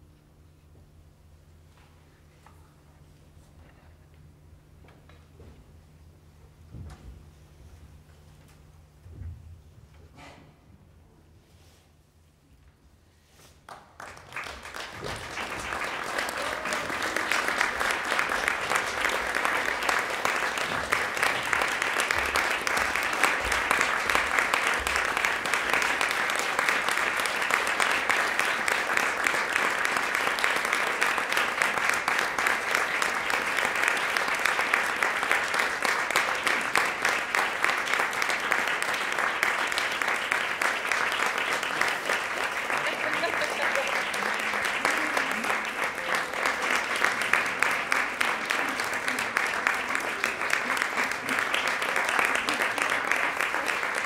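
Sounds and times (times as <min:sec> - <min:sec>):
audience applauding: 0:13.6 - 0:54.0.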